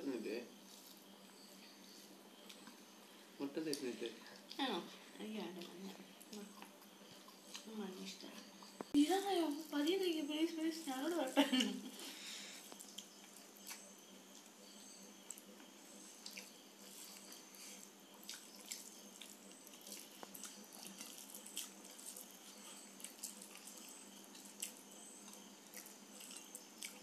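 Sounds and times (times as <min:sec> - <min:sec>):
low steady hiss: 0:00.0 - 0:27.0
chewing: 0:05.6 - 0:09.0, 0:11.6 - 0:14.6, 0:15.2 - 0:27.0.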